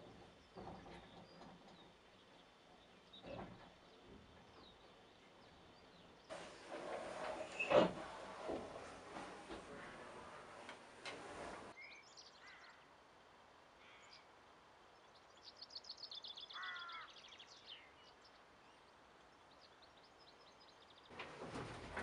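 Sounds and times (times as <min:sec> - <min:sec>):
small birds chirping: 0:00.0 - 0:06.5, 0:11.7 - 0:21.2.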